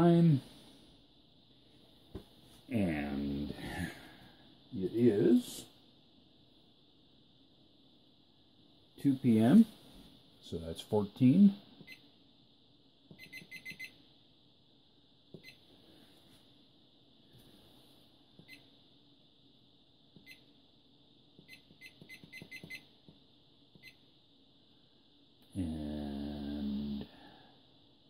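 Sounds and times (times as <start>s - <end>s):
faint steady high hiss: 0.0s - 28.0s
man's voice: 2.7s - 3.9s, 4.8s - 5.6s.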